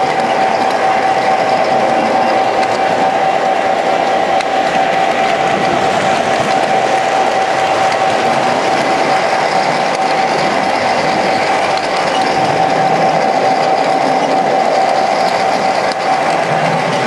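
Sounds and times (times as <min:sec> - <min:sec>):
constant hum: 0:00.0 - 0:17.0
model train wheels rattling: 0:00.0 - 0:17.0.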